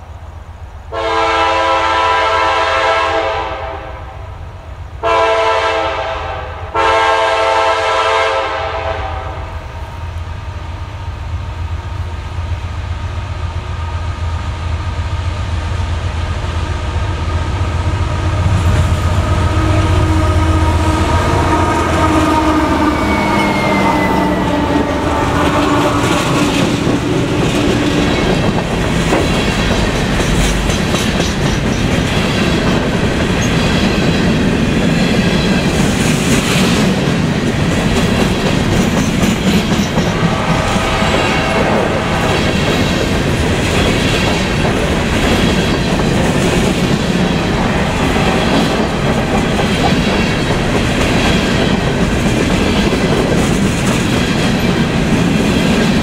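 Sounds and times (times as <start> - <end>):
diesel locomotive drone: 0.0 - 56.0
train air horn: 0.9 - 4.4, 5.0 - 9.8, 17.2 - 27.0, 40.0 - 42.4
train wheels clickety-clack: 15.7 - 56.0.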